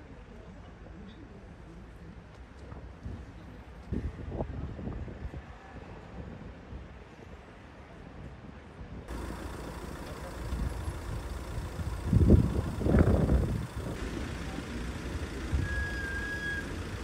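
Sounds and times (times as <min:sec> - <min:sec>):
vehicle engines rumbling: 0:09.1 - 0:17.0.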